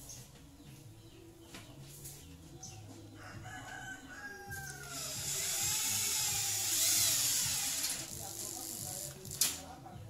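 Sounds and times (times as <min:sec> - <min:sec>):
rooster crowing: 0:03.2 - 0:05.6
electric drill whirring: 0:05.3 - 0:08.1.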